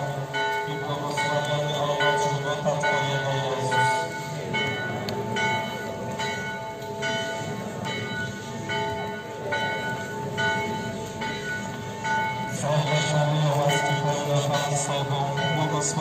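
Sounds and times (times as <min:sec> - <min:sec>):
crowd shuffling and murmuring: 0:00.0 - 0:16.0.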